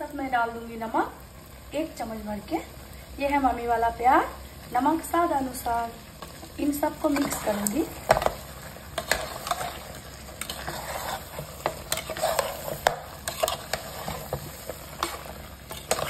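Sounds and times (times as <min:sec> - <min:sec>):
meat sizzling in oil: 0:00.0 - 0:16.0
spatula scraping metal pot: 0:09.0 - 0:16.0.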